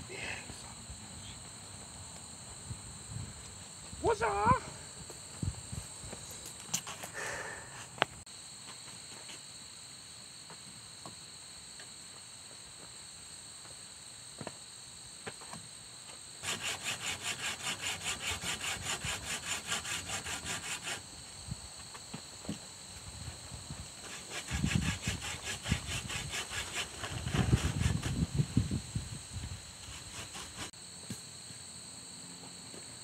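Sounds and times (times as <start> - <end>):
hand saw cutting log: 16.4 - 21.0, 24.0 - 28.3, 29.8 - 30.8
high-pitched insect drone: 16.5 - 21.0.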